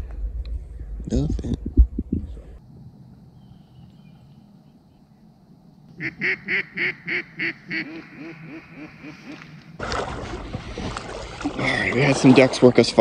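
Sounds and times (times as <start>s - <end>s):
mallard quacks: 6.0s - 9.5s.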